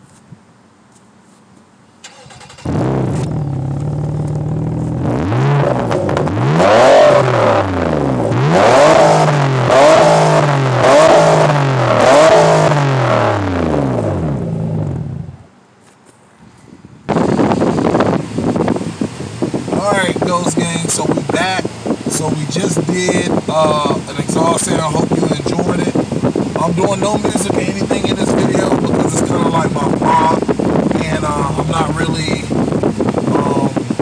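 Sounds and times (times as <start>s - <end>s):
car engine idling and revving: 0.0s - 15.6s, 17.0s - 34.0s.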